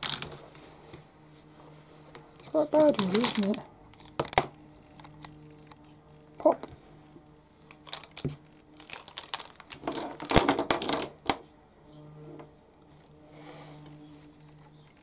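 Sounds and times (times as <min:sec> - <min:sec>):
pens and paper clattering rustling: 0:00.0 - 0:00.5, 0:02.1 - 0:06.0, 0:07.7 - 0:11.4.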